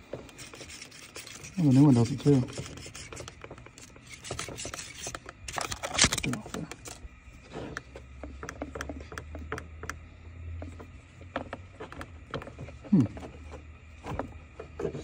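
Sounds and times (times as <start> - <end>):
scrape: 0.3 - 3.3, 4.0 - 5.2.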